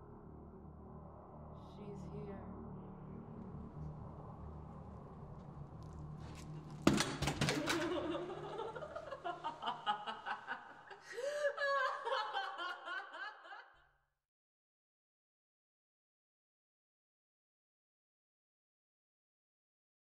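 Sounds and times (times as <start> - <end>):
low steady drone: 0.0 - 6.8.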